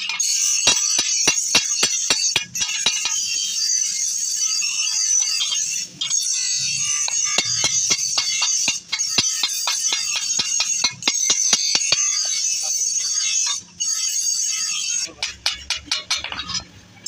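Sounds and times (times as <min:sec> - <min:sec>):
hammer striking metal blade: 0:00.5 - 0:03.4, 0:06.8 - 0:12.4.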